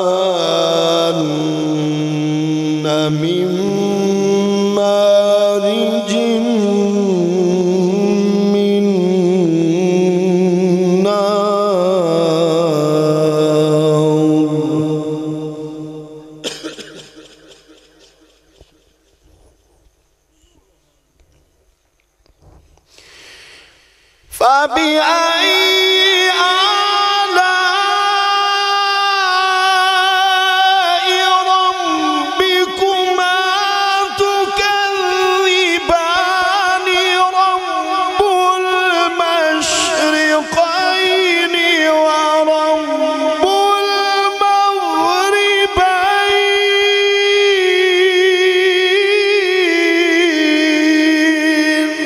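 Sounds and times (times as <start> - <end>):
man reciting melodic chant: 0.0 - 18.4, 24.2 - 52.0
faint clicks: 21.2 - 22.9.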